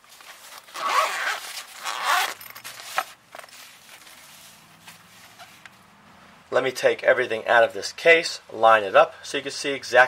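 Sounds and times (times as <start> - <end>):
zipper pulled open: 0.3 - 3.1.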